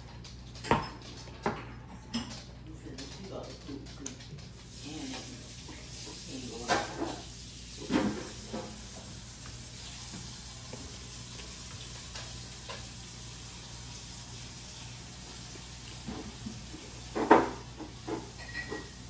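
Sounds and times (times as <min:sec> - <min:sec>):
clicks of people eating: 0:00.0 - 0:05.3.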